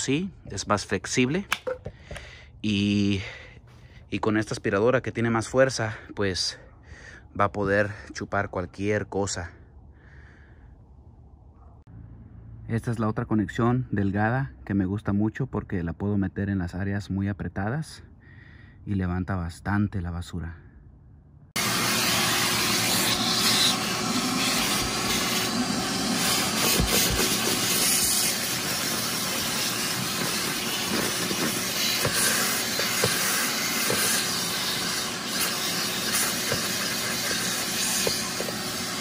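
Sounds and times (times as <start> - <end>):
shop vacuum running: 21.6 - 39.0.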